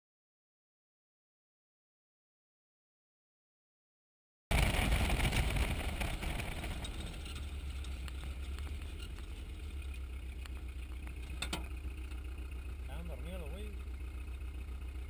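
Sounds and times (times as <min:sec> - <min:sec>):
truck engine running: 0:04.5 - 0:15.0.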